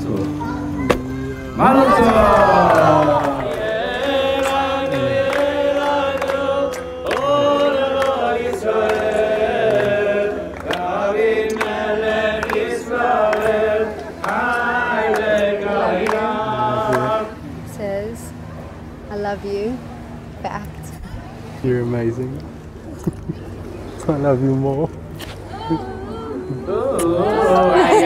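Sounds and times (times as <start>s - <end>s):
person singing long held notes: 0.2s - 13.5s, 25.5s - 28.0s.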